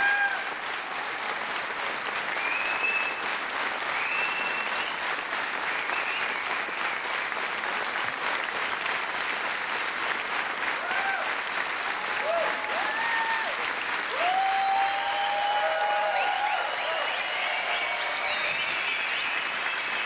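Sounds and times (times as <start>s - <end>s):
cheers and whoops: 0.0s - 0.6s, 10.8s - 20.0s
audience applauding: 0.0s - 20.0s.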